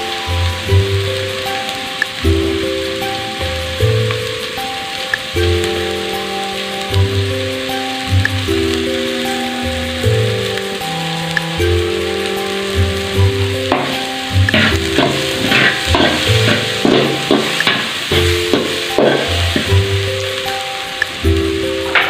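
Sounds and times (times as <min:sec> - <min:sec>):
background music: 0:00.0 - 0:22.0
onion and garlic sizzling in oil: 0:00.0 - 0:22.0
metal ladle scraping pot: 0:13.7 - 0:19.9.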